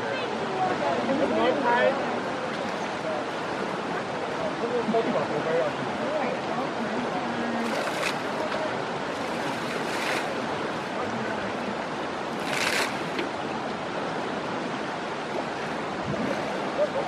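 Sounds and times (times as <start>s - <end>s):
river water rushing: 0.0s - 17.0s
elephants splashing in water: 7.4s - 11.2s, 12.3s - 13.5s.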